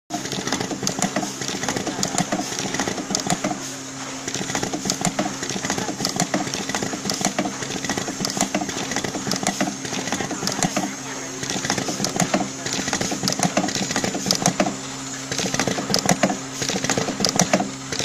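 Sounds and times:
machine humming: 0.1 - 18.0
machine mechanism clicking: 0.1 - 18.0.

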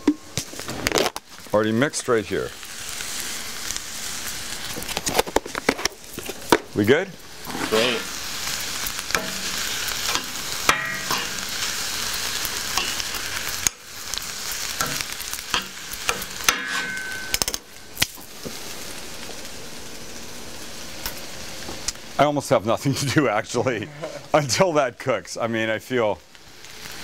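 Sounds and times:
onions sizzling in oil: 0.0 - 27.0
metal tongs clicking and scraping: 9.1 - 9.5, 10.1 - 11.4, 12.8 - 13.0, 14.8 - 17.6.

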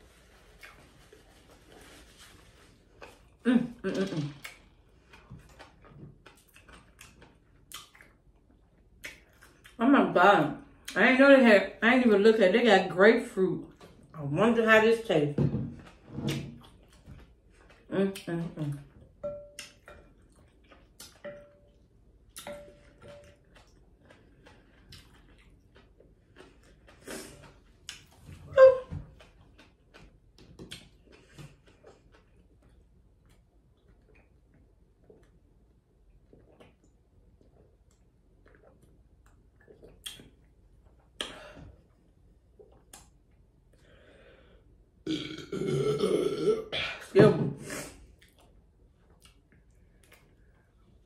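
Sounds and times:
loud burp: 45.0 - 47.0.

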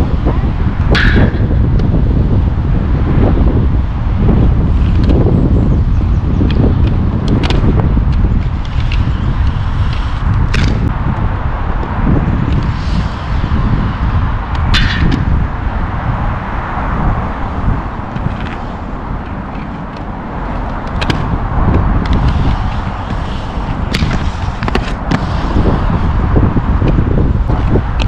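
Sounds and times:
skate wheels rumbling on concrete: 0.0 - 28.0
skates clacking on concrete: 6.4 - 10.9, 18.1 - 26.0.

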